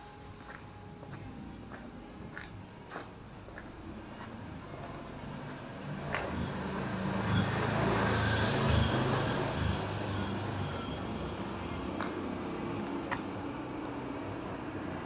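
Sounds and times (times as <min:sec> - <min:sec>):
vehicle engine rumble passing: 0:03.3 - 0:15.0.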